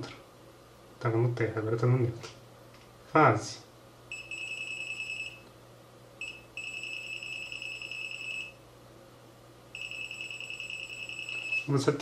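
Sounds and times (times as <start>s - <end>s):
multimeter buzzer beeping: 4.1s - 5.4s, 6.2s - 8.6s, 9.8s - 11.7s.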